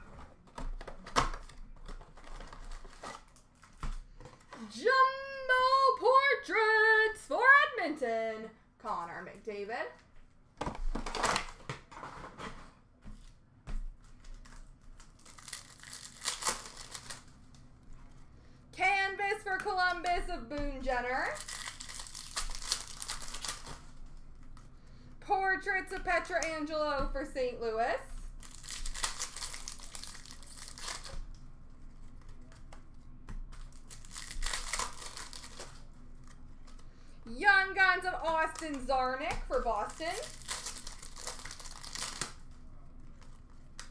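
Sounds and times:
foil wrappers crinkling and tearing: 1.3s - 3.9s, 14.1s - 17.5s, 20.9s - 24.7s, 28.2s - 31.3s, 33.5s - 36.8s, 39.4s - 43.9s.

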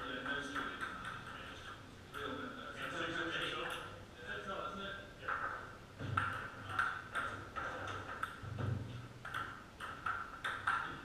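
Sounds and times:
ping pong ball clicking: 5.3s - 8.5s, 9.2s - 11.0s.

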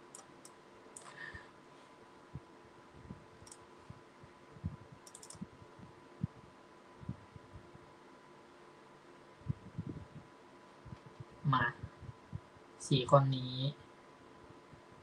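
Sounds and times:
computer mouse clicks: 0.0s - 1.2s, 3.4s - 3.6s, 5.0s - 5.5s.

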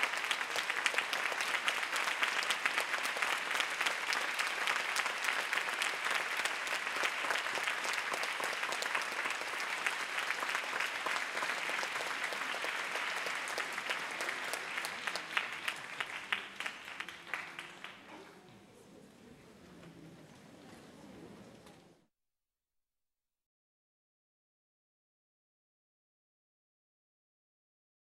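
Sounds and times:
audience applauding: 0.0s - 18.2s.

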